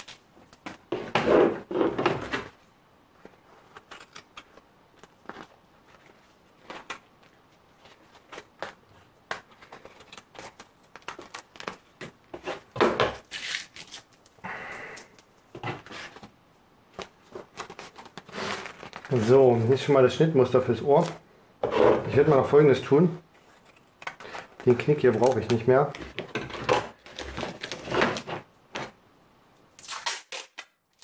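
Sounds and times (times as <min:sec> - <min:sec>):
paper rustling and crinkling: 0:00.0 - 0:14.4, 0:15.4 - 0:20.0, 0:23.3 - 0:29.0.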